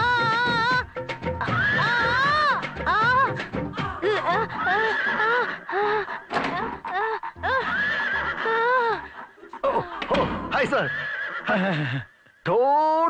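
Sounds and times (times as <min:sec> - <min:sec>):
woman's high-pitched cries: 0:01.4 - 0:07.8.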